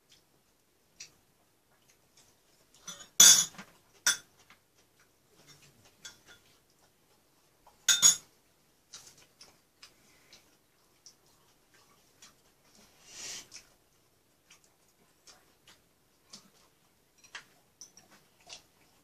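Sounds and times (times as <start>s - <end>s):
spoon and chopsticks clinking on bowl: 2.8s - 4.3s, 5.4s - 6.5s, 7.9s - 8.3s.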